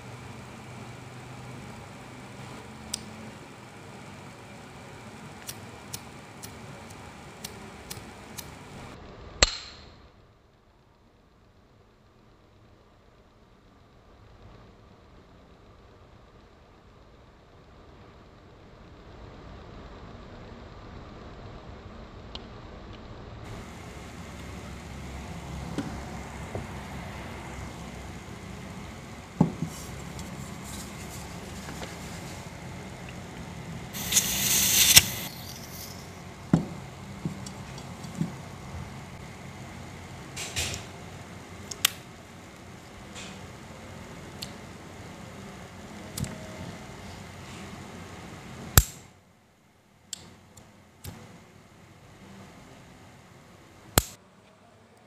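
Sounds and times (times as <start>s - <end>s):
lighter flame crackling hiss: 0.0s - 9.6s, 15.4s - 49.1s, 53.8s - 54.2s
lighter clicking: 5.4s - 8.6s, 34.0s - 36.1s, 48.8s - 49.0s.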